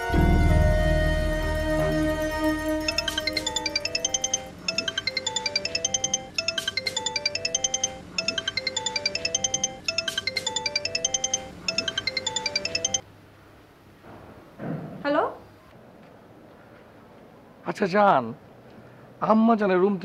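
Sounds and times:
smartphone ringtone chiming: 2.8 - 13.0.

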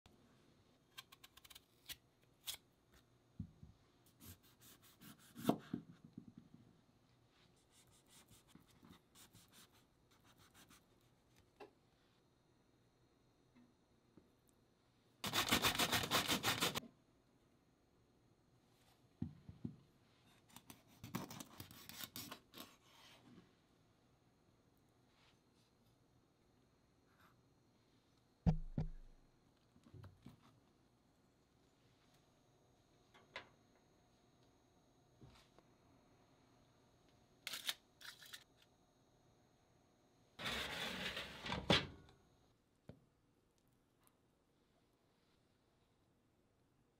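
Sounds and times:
grill drawer sliding shut: 40.4 - 42.0.

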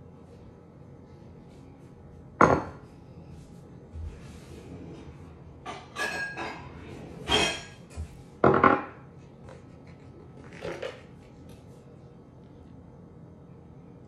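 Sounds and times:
tableware clinking on wood: 2.4 - 2.8, 5.6 - 9.0.

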